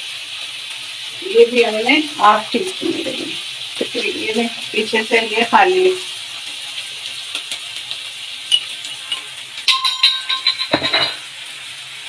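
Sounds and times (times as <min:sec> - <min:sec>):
spices sizzling in hot fat: 0:00.0 - 0:12.0
metallic ringing clink: 0:08.5 - 0:11.2.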